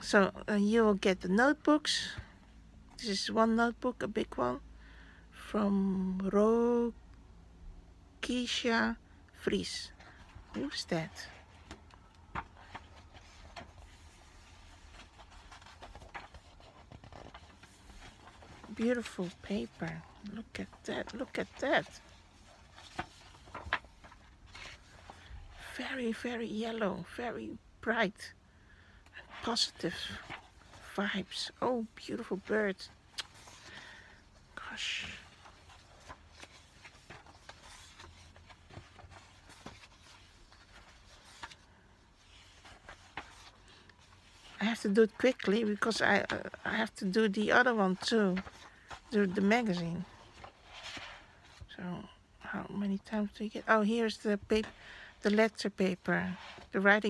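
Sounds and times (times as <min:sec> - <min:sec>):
paper rustling: 0:10.1 - 0:25.6, 0:29.3 - 0:34.2, 0:35.0 - 0:46.6, 0:47.6 - 0:51.7.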